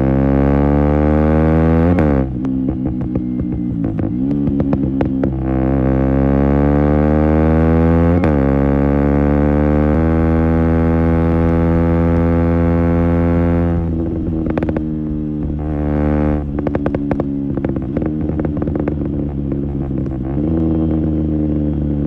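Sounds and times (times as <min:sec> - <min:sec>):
motorcycle engine accelerating: 0:00.0 - 0:22.0
exhaust crackles and pops: 0:01.9 - 0:06.1, 0:11.2 - 0:22.0.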